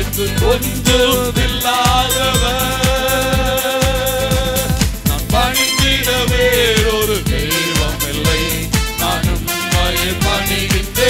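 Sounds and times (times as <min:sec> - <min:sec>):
steady drum beat: 0:00.0 - 0:11.0
man singing a long note: 0:00.8 - 0:08.6.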